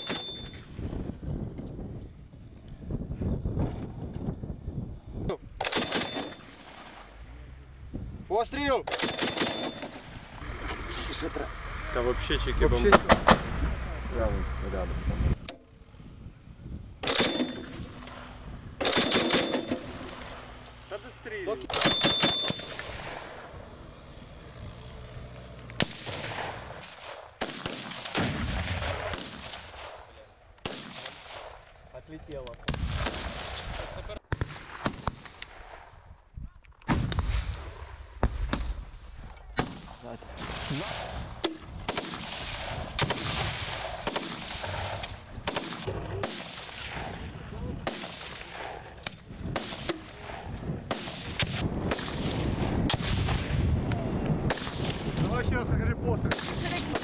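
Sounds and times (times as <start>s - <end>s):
gunshots with echo: 5.6s - 6.9s, 8.8s - 10.0s, 17.0s - 20.3s, 21.7s - 23.4s, 40.4s - 47.2s
rocket launcher firing: 12.8s - 14.0s, 17.0s - 20.6s, 25.8s - 31.7s, 32.6s - 35.9s, 36.9s - 55.2s.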